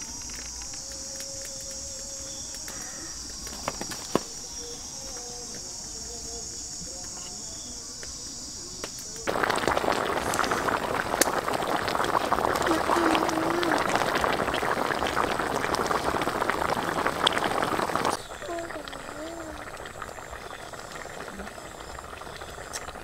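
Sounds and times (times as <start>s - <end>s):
high-pitched insect buzz: 0.0s - 23.0s
pot bubbling and crackling: 8.8s - 23.0s.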